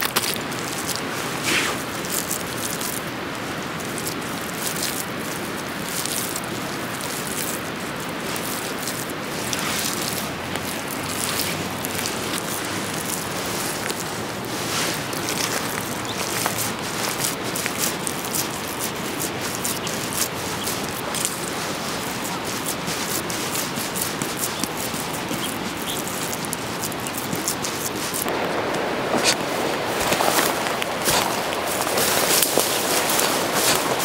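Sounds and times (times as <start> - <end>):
hand scraping soil: 0.0 - 34.0
steady rushing noise: 0.0 - 34.0.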